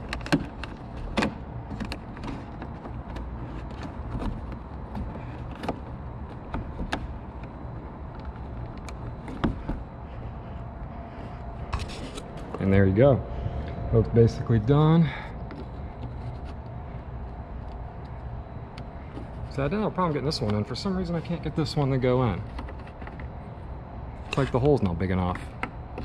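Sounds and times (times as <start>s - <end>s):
plastic fasteners clicking: 0.0s - 9.8s
steady low rumble: 0.0s - 26.0s.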